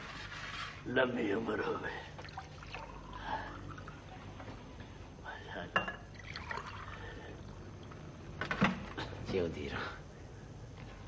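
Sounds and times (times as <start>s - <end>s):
drink pouring into glass: 2.2s - 4.5s, 5.9s - 7.9s
glass clink: 5.8s - 6.1s.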